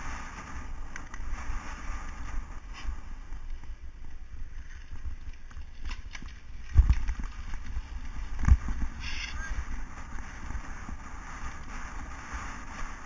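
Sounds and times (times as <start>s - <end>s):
bicycle bumping heavy thumps: 4.7s - 9.2s.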